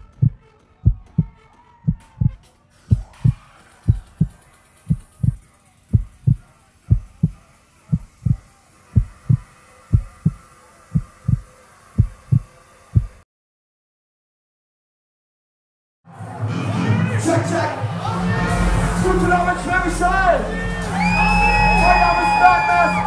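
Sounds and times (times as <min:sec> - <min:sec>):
heartbeat thumps: 0:00.0 - 0:08.4, 0:09.0 - 0:13.2.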